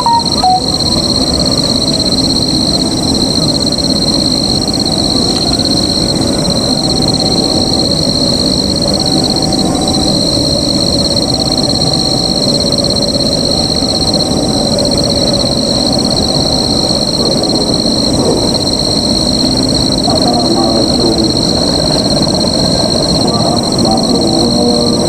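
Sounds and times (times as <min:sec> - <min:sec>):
high insect drone: 0:00.0 - 0:25.0
two-tone crossing alarm: 0:00.0 - 0:25.0.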